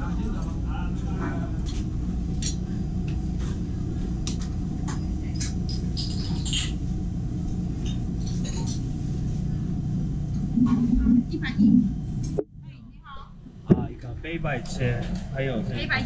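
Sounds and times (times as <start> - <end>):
steady low hum: 0.0 - 16.0
clinks of bowls and utensils: 5.4 - 6.8, 7.8 - 8.8.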